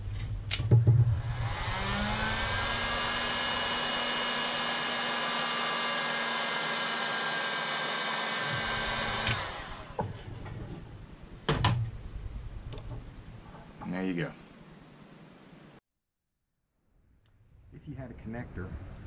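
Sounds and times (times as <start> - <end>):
heat gun fan whine: 0.0 - 10.5
knock: 0.6 - 1.2.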